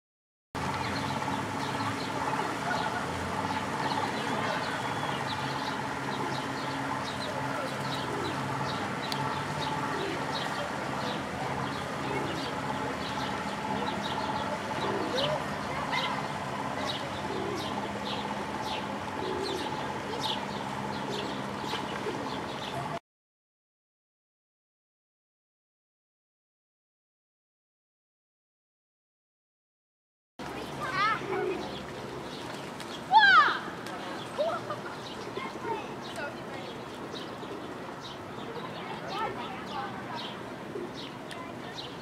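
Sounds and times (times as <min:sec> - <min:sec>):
birds chirping: 0:00.6 - 0:23.0, 0:30.5 - 0:42.0
boat engine running: 0:00.6 - 0:23.0
steady hum: 0:00.6 - 0:23.0
pigeons cooing: 0:01.3 - 0:22.9, 0:30.8 - 0:32.7, 0:34.4 - 0:41.2.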